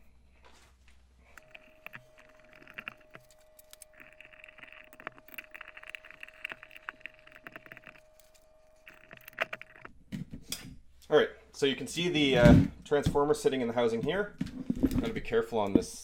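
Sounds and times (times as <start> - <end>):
screwdriver turning screws: 1.4 - 9.9.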